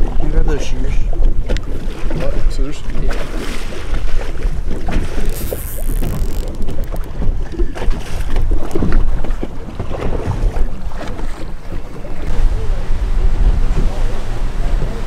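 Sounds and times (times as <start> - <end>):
wind buffeting microphone: 0.0 - 15.0
small knocks and clicks: 5.2 - 7.2.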